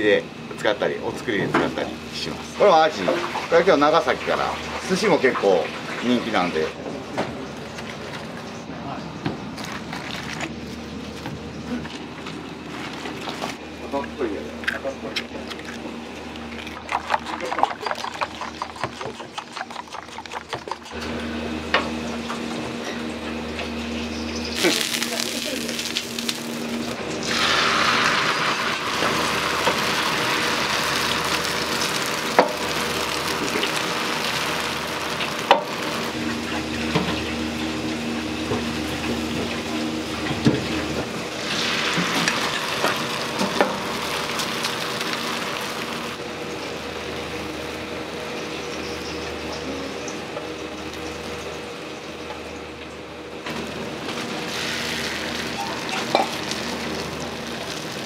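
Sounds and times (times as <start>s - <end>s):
kitchen machinery hum: 0.0s - 58.0s
hiss of running water or frying: 24.6s - 36.2s, 41.3s - 46.2s, 53.6s - 58.0s.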